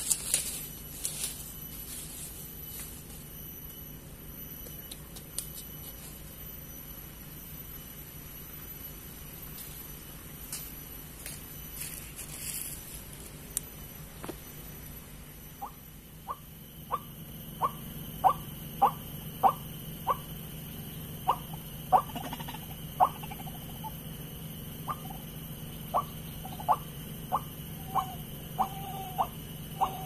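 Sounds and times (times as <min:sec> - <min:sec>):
steady low hum: 0:00.0 - 0:30.0
waterhen calls: 0:25.9 - 0:30.0.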